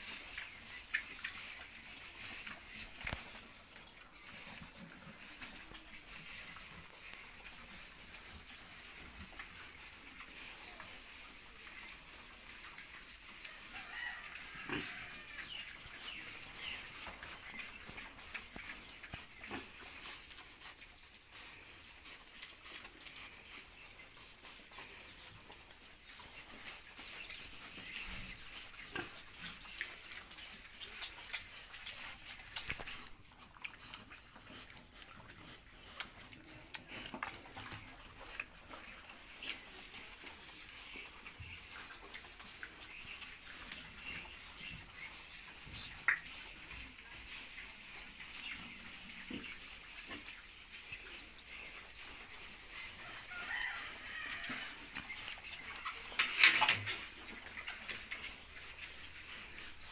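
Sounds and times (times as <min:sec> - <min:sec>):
pigs calling: 0:13.8 - 0:59.9.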